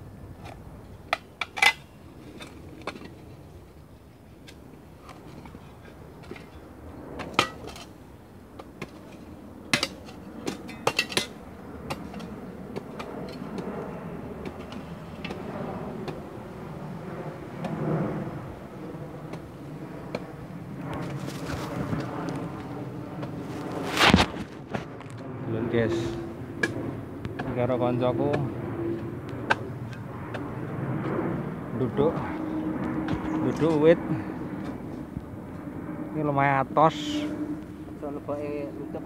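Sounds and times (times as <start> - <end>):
rustling of branches: 20.3 - 25.3
spade scraping stony soil: 23.2 - 24.9.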